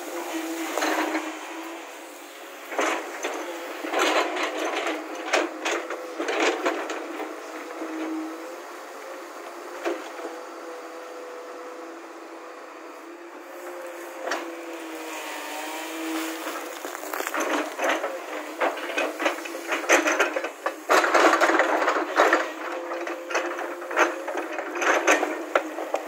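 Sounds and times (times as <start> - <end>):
excavator engine whine: 0.0 - 26.0
bucket scraping broken stone: 15.9 - 23.3.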